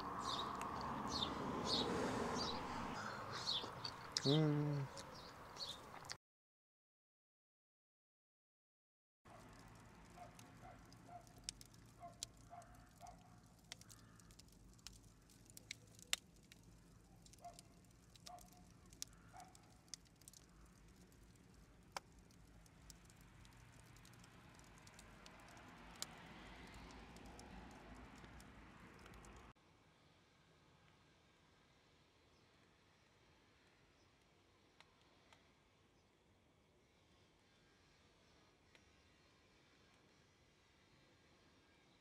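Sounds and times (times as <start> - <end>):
fire popping: 0.0 - 4.3, 9.3 - 29.5
wood fire crackling: 0.0 - 4.3, 9.3 - 29.5.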